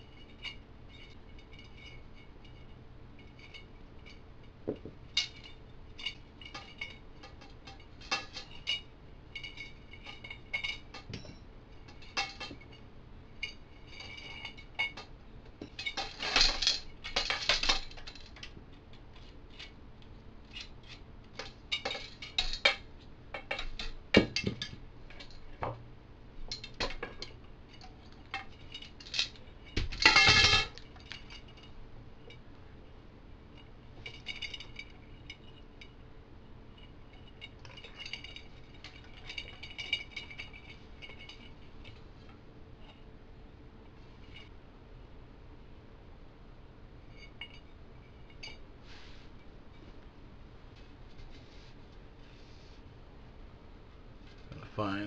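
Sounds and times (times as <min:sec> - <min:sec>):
bicycle spokes clicking and clinking: 0:03.2 - 0:12.7, 0:20.5 - 0:25.8
metal rattling clatter: 0:03.2 - 0:12.8, 0:13.4 - 0:18.6, 0:20.5 - 0:25.7, 0:26.5 - 0:32.4, 0:33.6 - 0:36.0, 0:36.7 - 0:43.0.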